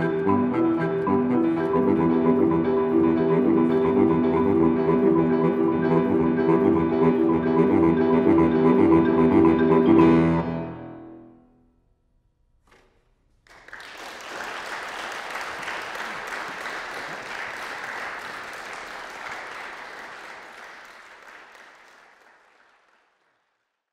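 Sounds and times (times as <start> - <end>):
audience applauding: 12.7 - 23.9.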